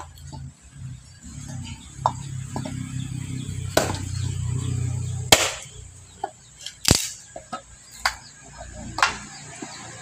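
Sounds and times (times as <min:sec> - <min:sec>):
blade chopping into wood: 0:03.8 - 0:04.0, 0:05.3 - 0:05.7.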